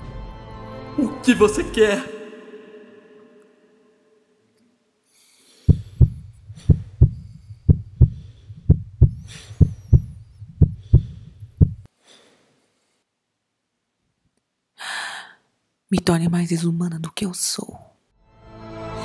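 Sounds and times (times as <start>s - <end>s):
heartbeat thumps: 5.7s - 11.9s
faint high hiss with gliding tones: 11.9s - 13.2s.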